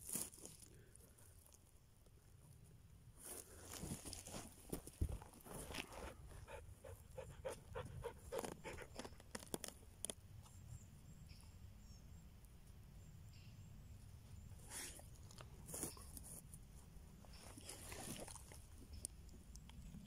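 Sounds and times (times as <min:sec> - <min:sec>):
rustling of needles and twigs: 0:00.0 - 0:06.4, 0:08.0 - 0:10.8, 0:14.5 - 0:20.0
dog panting: 0:06.0 - 0:09.0.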